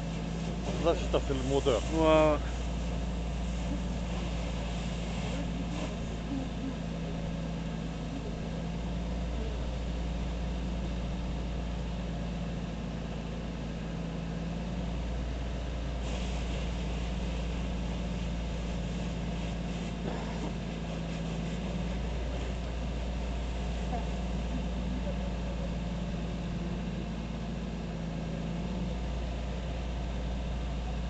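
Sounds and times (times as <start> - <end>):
hiss: 0.0 - 6.5, 15.9 - 22.6
heavy vehicle engine idling: 0.0 - 31.0.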